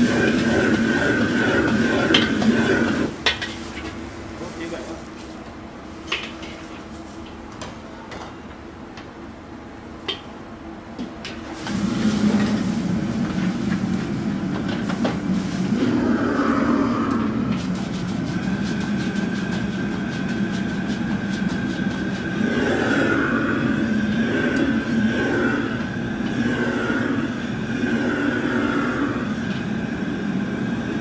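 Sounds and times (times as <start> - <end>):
brush scrubbing wok: 0.0 - 5.0, 17.5 - 23.6
water hissing in wok: 0.0 - 5.0, 11.4 - 25.7
kitchen hum: 0.0 - 8.6, 11.2 - 31.0
gas burner roaring: 0.0 - 31.0.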